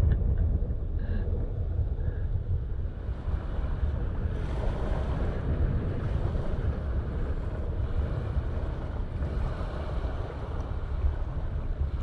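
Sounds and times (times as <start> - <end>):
wind buffeting the microphone: 0.0 - 12.0
small waves lapping on shore: 2.9 - 12.0.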